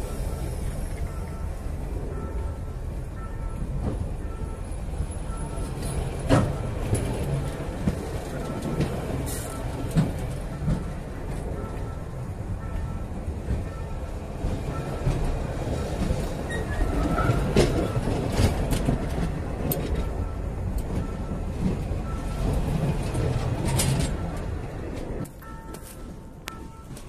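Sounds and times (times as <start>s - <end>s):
train wheels rumbling on rails: 0.0s - 27.0s.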